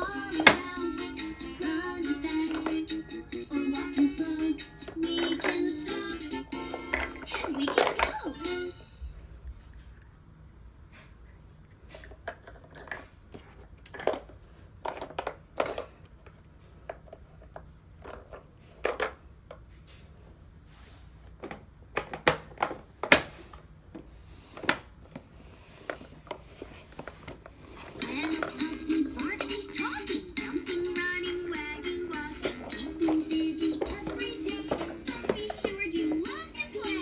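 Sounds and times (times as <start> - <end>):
plastic blocks clattering: 6.6 - 8.4, 12.3 - 16.0, 27.0 - 29.7.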